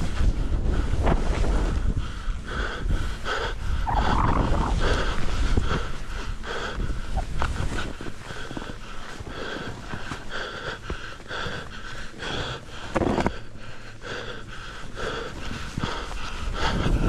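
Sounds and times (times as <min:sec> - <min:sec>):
person breathing hard: 0:00.0 - 0:17.0
skis scraping through snow: 0:03.9 - 0:06.4.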